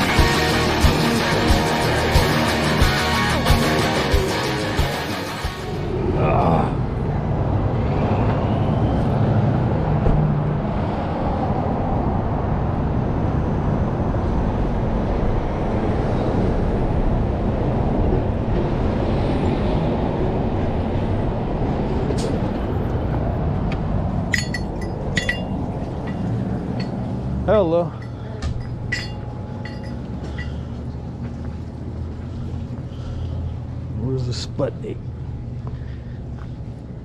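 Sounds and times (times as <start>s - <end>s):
steady rushing rumble: 0.0s - 37.0s.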